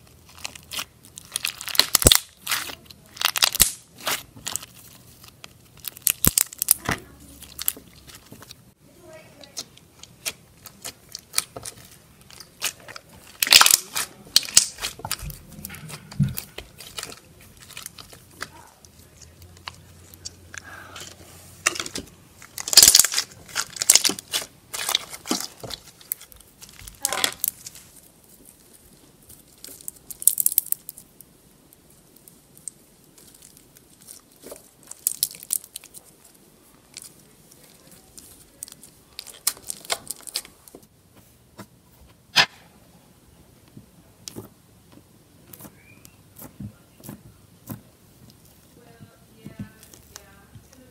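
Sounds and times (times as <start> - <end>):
slime crackling and popping: 0.0 - 20.6, 21.6 - 40.9.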